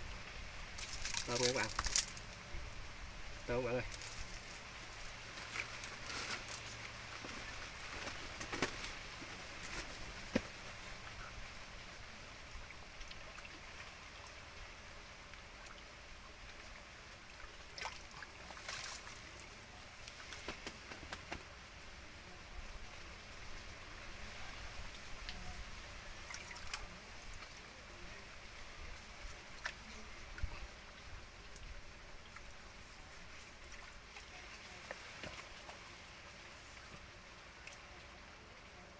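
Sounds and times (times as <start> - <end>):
small water splashes: 0.2 - 2.4, 3.6 - 21.4, 23.4 - 38.8
muddy water sloshing: 17.1 - 21.4, 26.0 - 27.8.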